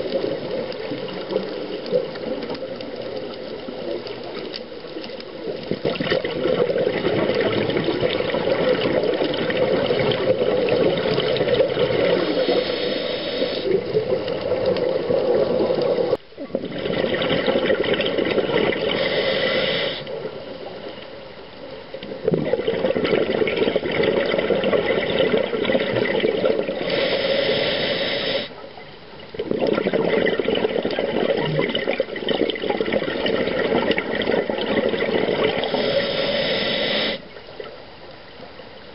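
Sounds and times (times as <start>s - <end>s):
exhaled bubbles rushing: 0.0s - 19.4s, 22.1s - 26.9s, 29.4s - 35.8s
regulator breathing underwater: 11.8s - 13.9s, 18.8s - 20.2s, 26.6s - 28.6s, 35.3s - 37.4s.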